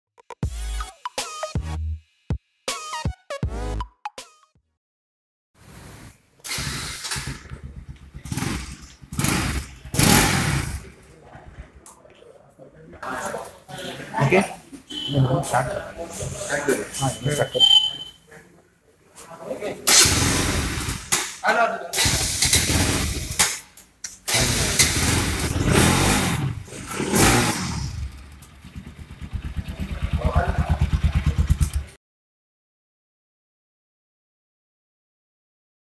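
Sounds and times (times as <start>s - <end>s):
motorcycle engine revving: 6.5s - 11.7s, 19.9s - 21.1s, 22.0s - 23.4s, 24.3s - 32.0s.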